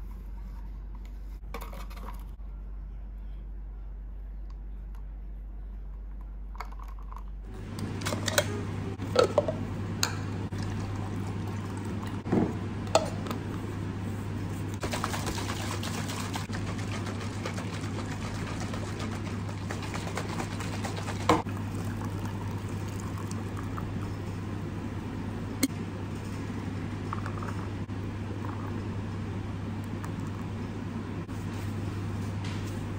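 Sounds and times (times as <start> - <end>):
steady low hum: 0.0 - 32.9
drink pouring into a pitcher: 14.8 - 24.1.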